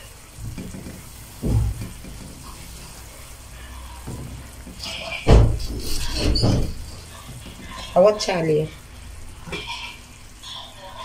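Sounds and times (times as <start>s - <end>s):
syrup bubbling in a pot: 0.0s - 11.0s
dull bumps: 0.4s - 2.9s.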